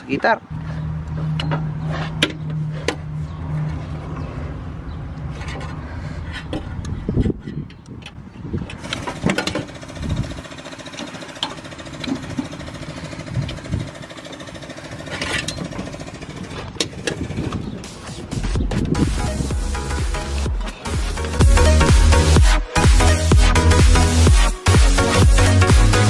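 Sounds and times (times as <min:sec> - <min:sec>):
electronic music: 0:17.6 - 0:26.0.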